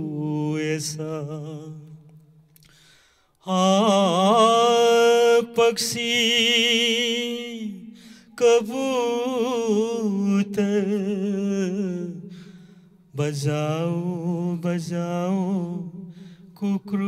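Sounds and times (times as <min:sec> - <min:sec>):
man singing unaccompanied: 0:00.0 - 0:02.2, 0:03.4 - 0:12.3, 0:13.1 - 0:17.0.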